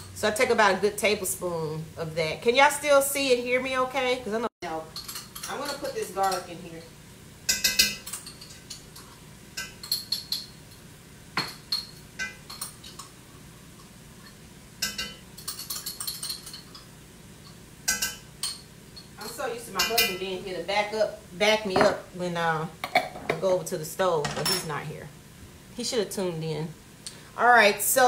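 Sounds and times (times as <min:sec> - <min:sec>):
metal spoon clinking on cookware: 0:04.9 - 0:06.9, 0:07.5 - 0:10.8, 0:11.4 - 0:13.1, 0:13.8 - 0:16.9, 0:17.8 - 0:20.2.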